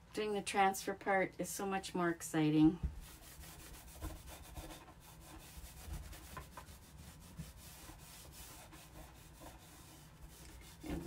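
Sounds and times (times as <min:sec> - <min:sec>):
cloth scrubbing on wood: 0:03.0 - 0:11.0.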